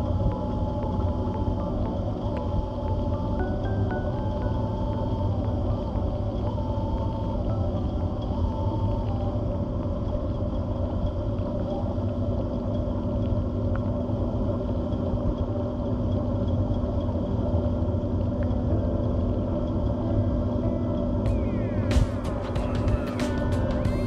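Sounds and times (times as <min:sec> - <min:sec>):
faint steady whine: 0:00.0 - 0:24.0.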